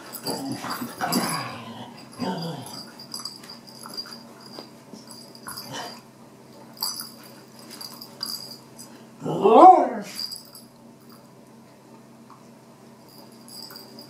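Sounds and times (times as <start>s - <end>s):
dog toys clicking and rustling: 0.0s - 8.9s, 13.1s - 14.0s.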